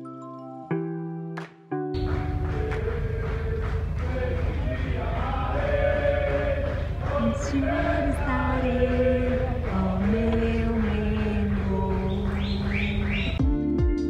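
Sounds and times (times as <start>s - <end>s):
person singing slow melody: 2.0s - 12.6s
low rumble: 2.0s - 13.4s.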